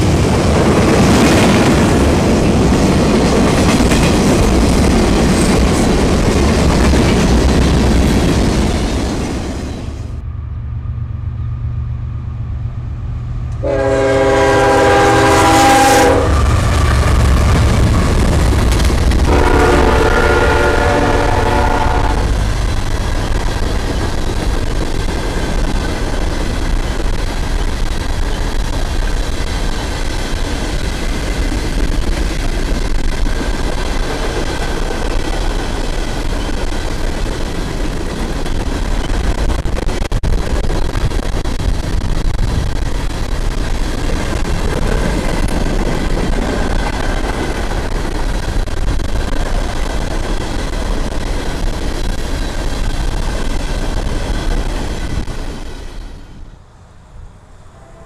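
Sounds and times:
train rumbling past: 0.0s - 58.0s
locomotive air horn blasts: 13.6s - 16.5s, 19.3s - 22.4s, 57.7s - 58.0s.

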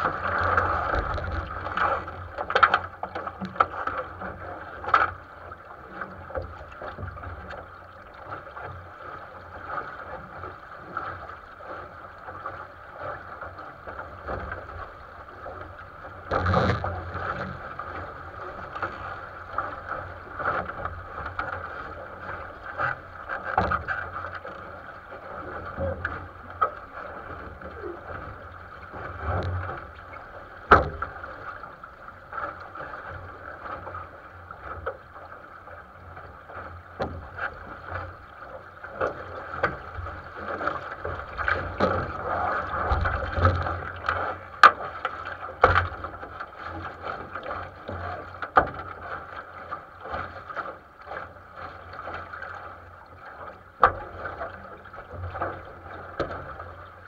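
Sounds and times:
water rushing along a boat hull: 0.0s - 57.0s
hull knocks: 30.6s - 31.2s.

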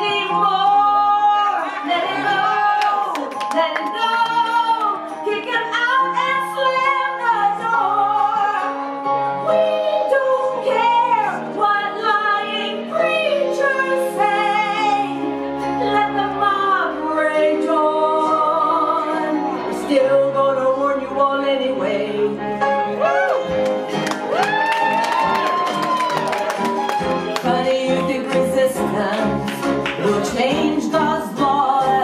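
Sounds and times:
operatic singing voice with vibrato: 27.4s - 32.0s.

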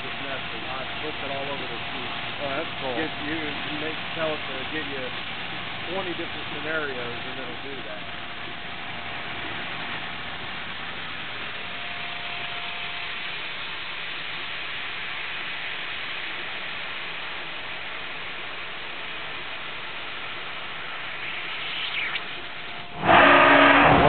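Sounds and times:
faint steady tone: 0.0s - 24.0s
laser cutter hissing: 21.0s - 24.0s.

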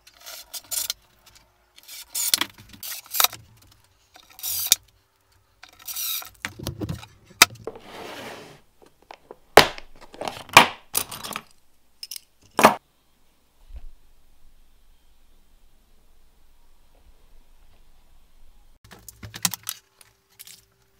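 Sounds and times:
plastic box sliding on wood: 7.6s - 8.6s.

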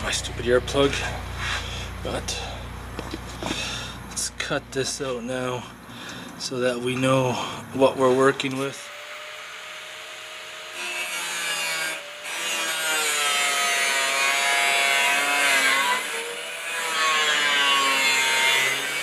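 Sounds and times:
angle grinder cutting sheet metal: 8.5s - 19.0s.

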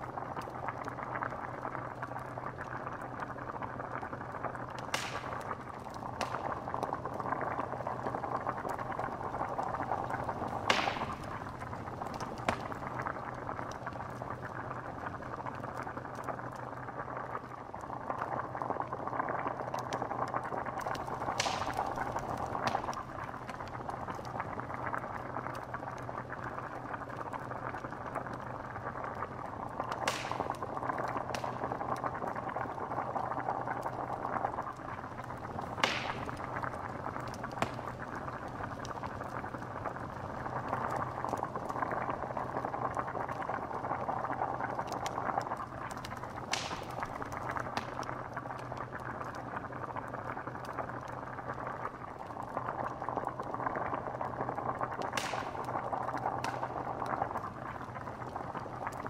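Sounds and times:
liquid boiling with dense bubbling: 0.0s - 59.0s
sharp bubble pops: 4.7s - 14.3s, 19.8s - 24.5s, 29.7s - 32.1s, 33.6s - 41.4s, 44.2s - 48.1s, 54.9s - 57.2s.

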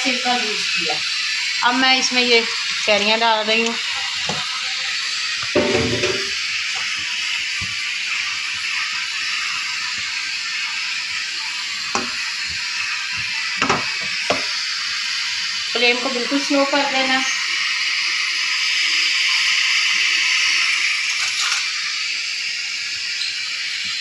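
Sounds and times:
syrup sizzling in saucepan: 0.0s - 24.0s
pan or spoon knocking: 5.5s - 6.4s, 11.9s - 12.2s, 13.6s - 14.5s.

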